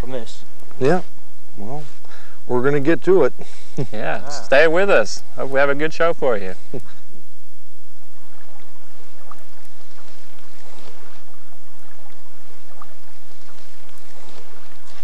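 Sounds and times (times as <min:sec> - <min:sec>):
low hum: 0:00.0 - 0:15.0
faint small splashes: 0:08.2 - 0:15.0.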